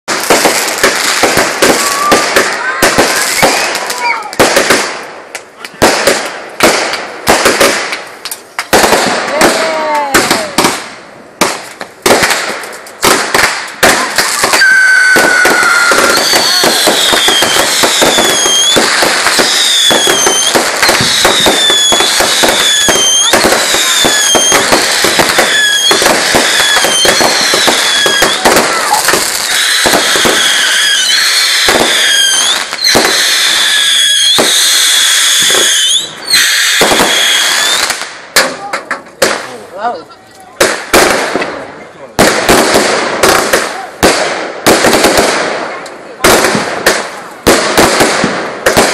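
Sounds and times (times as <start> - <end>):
firework bangs and crackling: 0.0 - 48.9
firework whistle: 14.2 - 38.0.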